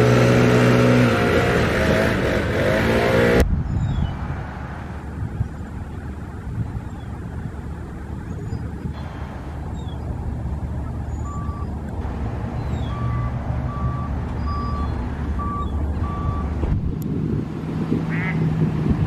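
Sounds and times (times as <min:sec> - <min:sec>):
traffic rumble: 0:00.0 - 0:19.0
reversing alarm beeping: 0:11.1 - 0:11.8, 0:12.7 - 0:16.6.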